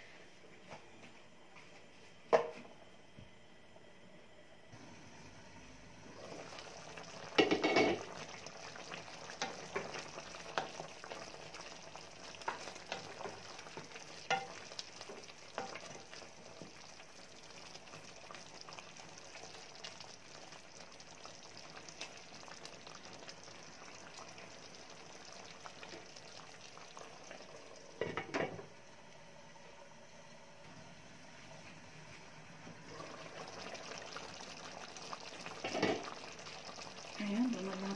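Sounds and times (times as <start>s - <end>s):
food simmering and sizzling: 4.8s - 37.9s
wooden spoon stirring and tapping: 12.4s - 15.9s.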